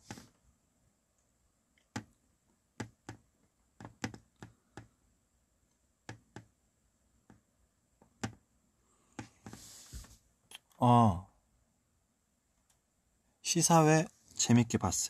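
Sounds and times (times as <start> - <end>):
faint clicks and taps: 1.2 - 5.0, 5.6 - 6.6, 7.2 - 8.4, 12.6 - 12.8.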